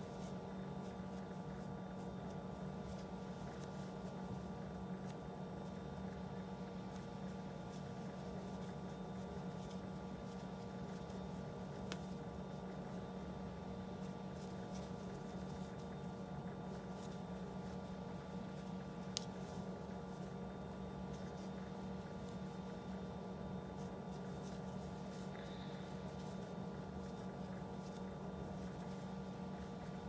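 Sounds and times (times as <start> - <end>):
steady low hum: 0.0 - 30.0
yarn rustling: 0.0 - 30.0.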